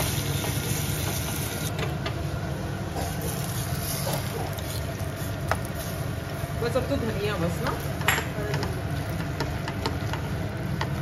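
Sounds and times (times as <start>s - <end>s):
onion and garlic frying: 0.0s - 11.0s
spatula stirring and scraping: 2.9s - 11.0s.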